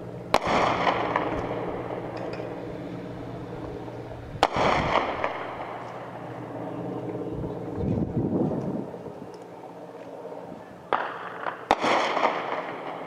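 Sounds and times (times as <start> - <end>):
helicopter drone overhead: 0.0 - 13.0
sharp echoing bang: 0.3 - 2.7, 4.4 - 5.8, 10.9 - 13.0.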